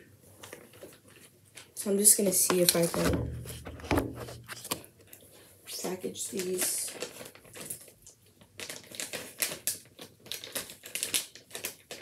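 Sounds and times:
plastic bag crinkling: 5.7 - 12.0.

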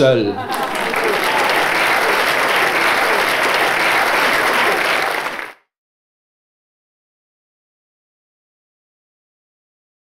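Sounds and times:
audience applauding: 0.4 - 5.6.

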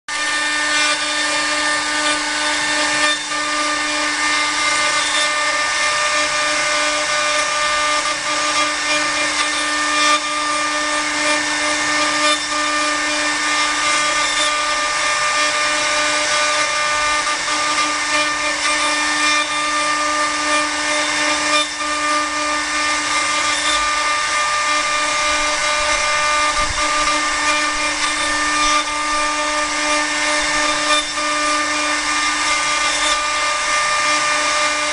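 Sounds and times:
router bits cutting wood: 0.1 - 34.9
spindle whine: 22.9 - 34.9.

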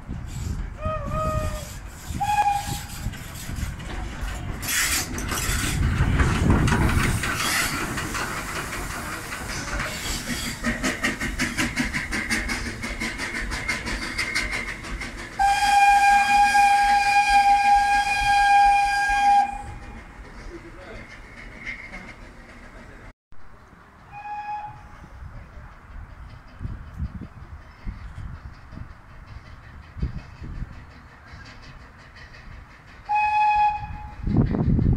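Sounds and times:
steam engine rumble and hiss: 0.0 - 34.9
steam whistle: 0.8 - 3.0, 15.4 - 19.8, 24.1 - 25.0, 33.1 - 34.2
rhythmic steam engine beat: 4.6 - 22.8, 23.8 - 34.9.

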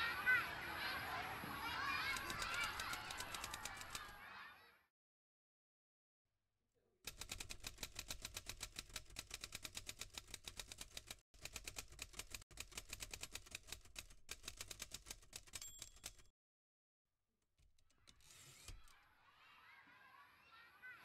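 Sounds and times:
typewriter keystrokes clacking: 2.1 - 4.1, 7.1 - 16.3
typewriter bell ring: 15.4 - 16.3.

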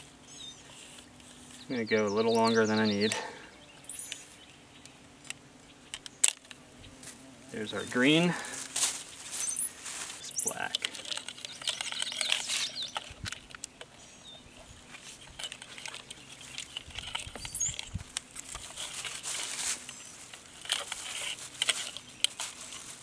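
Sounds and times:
wire rustling and scraping: 5.2 - 23.0.

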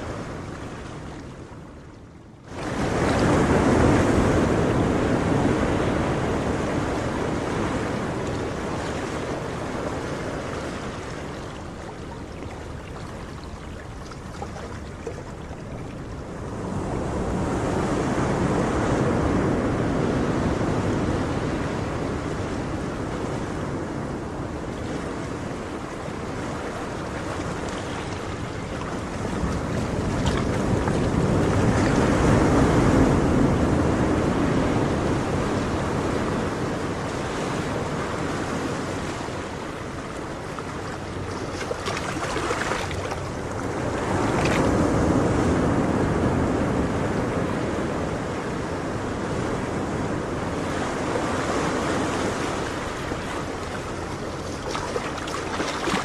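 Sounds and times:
ocean surf washing onto shore: 2.4 - 56.0.

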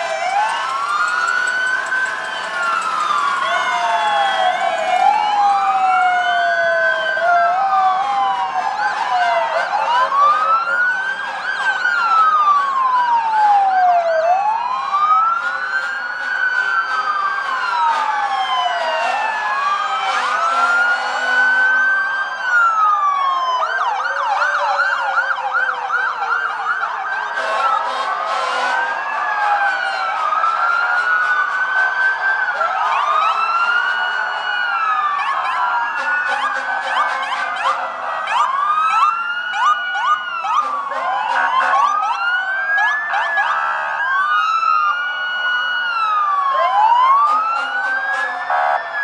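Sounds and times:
emergency sirens wailing: 0.0 - 49.0
low-pitched siren: 0.0 - 49.0
siren yelping: 0.0 - 49.0.

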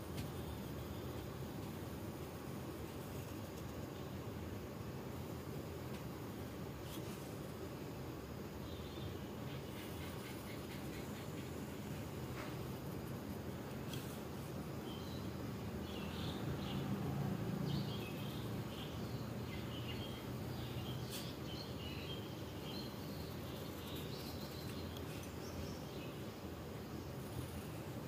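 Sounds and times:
low background hum: 0.0 - 28.0
small birds chirping: 6.7 - 28.0.

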